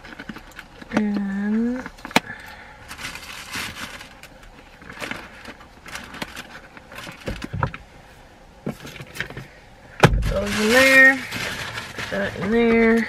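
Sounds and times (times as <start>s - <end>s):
rustling and light knocks of items: 2.9s - 7.9s
dull thump: 10.0s - 10.4s.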